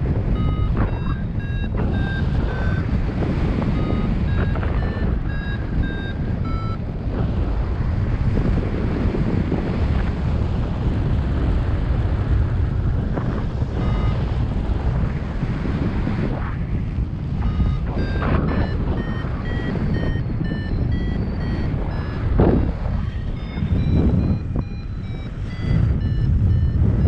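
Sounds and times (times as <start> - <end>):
wind noise on microphone: 0.0 - 27.0
variometer short electronic beeps: 0.2 - 6.8, 13.7 - 14.5, 17.3 - 27.0.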